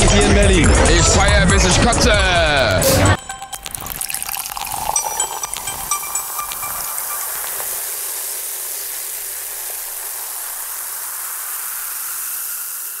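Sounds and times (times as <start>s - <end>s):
steady hiss: 4.0s - 13.0s.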